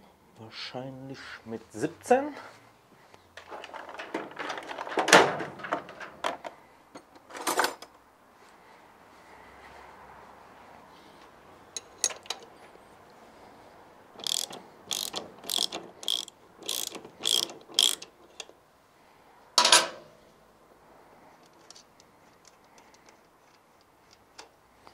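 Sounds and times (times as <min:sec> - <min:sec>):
ratchet wrench clicking: 0:14.2 - 0:18.5
metal clank: 0:19.6 - 0:20.1.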